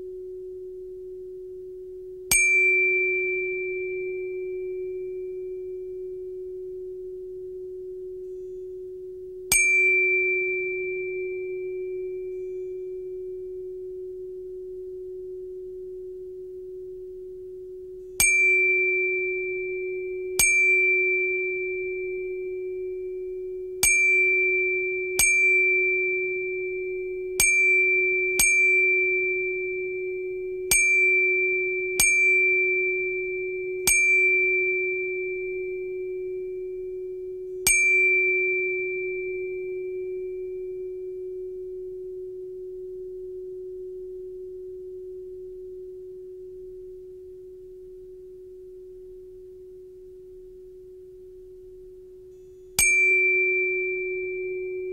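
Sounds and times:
low hum-like tone: 0:00.0 - 0:33.8
struck bell-like tones: 0:52.4 - 0:54.9.

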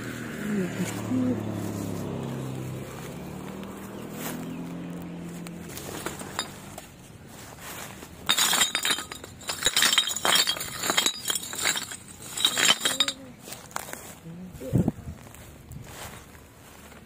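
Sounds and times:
glass bottles clinking: 0:05.9 - 0:06.8, 0:08.1 - 0:13.7.

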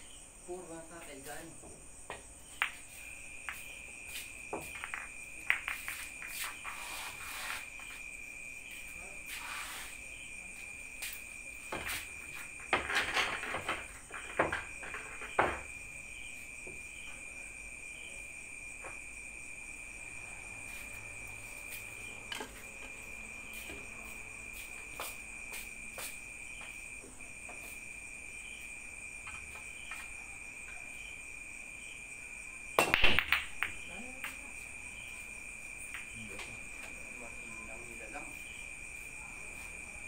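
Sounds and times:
crickets chirping: 0:00.0 - 0:40.0
pool balls clicking: 0:04.5 - 0:06.4, 0:32.8 - 0:34.4.

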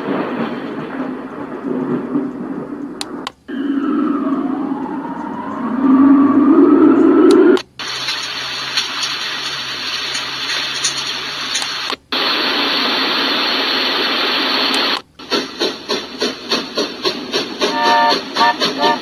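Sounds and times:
low rumble: 0:00.0 - 0:07.6
slowly rising alarm tone: 0:03.5 - 0:07.6
steady hiss: 0:07.6 - 0:19.0.

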